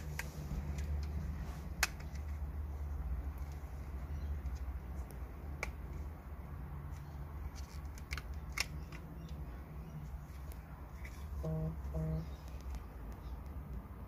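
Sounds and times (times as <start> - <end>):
plastic clips clicking: 0.0 - 2.6, 4.4 - 6.1, 6.9 - 9.5.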